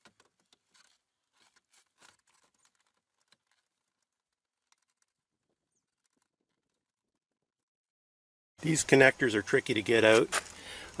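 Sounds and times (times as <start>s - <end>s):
hands handling plastic trim: 0.0s - 6.7s.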